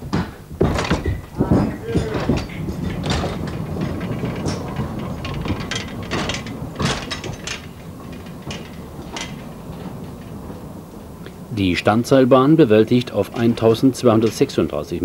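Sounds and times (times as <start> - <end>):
metal and wood clanks: 0.0 - 15.0
rail wagon wheels rumbling: 0.0 - 15.0.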